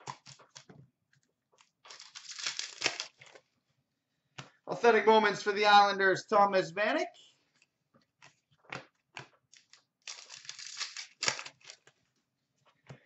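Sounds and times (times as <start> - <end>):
cards rustling while shuffled: 1.6 - 3.5, 7.5 - 12.9
cards snapping and flicking: 1.9 - 3.4, 8.7 - 11.8.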